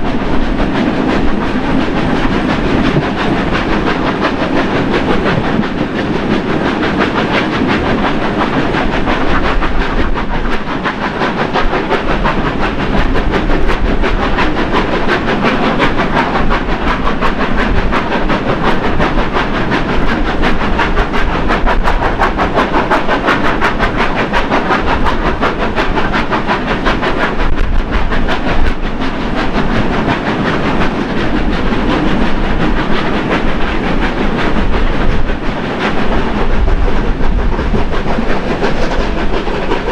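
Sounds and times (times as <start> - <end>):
train wheels clattering on rail: 0.0 - 39.9.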